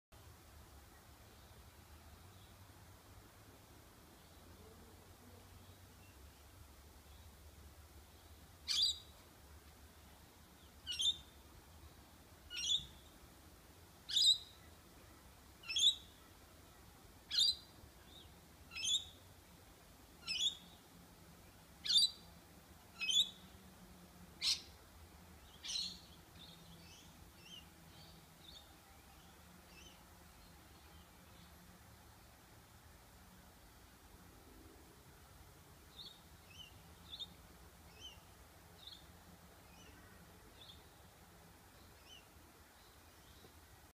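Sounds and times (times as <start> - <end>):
faint bird chirps: 8.1 - 9.2, 10.6 - 11.4, 12.5 - 13.2, 14.1 - 19.2, 20.2 - 20.8, 23.0 - 23.6, 24.4 - 24.8, 35.9 - 41.0.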